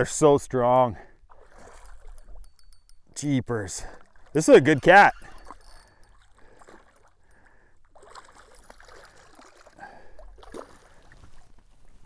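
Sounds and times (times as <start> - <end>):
fish splashing in water: 7.8 - 11.4.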